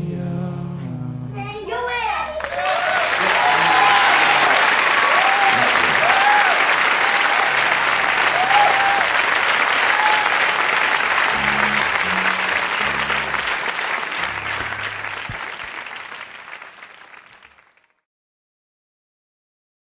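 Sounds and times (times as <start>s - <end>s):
audience applause and cheering: 2.3s - 17.8s
low sustained instrument notes: 11.2s - 15.7s.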